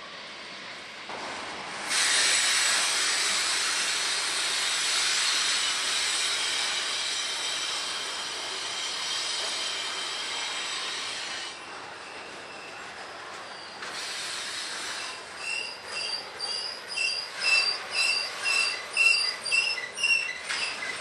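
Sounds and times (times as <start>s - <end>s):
freight car wheels squealing: 14.6s - 21.0s.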